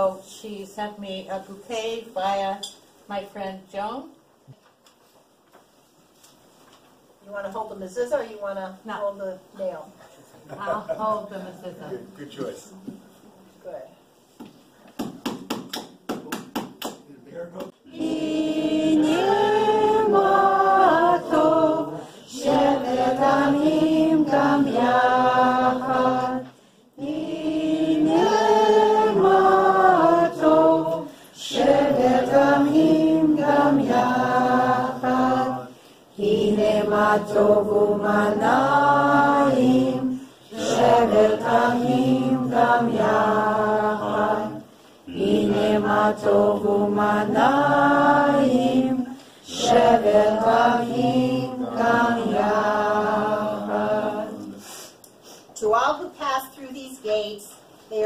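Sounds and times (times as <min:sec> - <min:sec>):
group of people singing: 0:17.8 - 0:54.6.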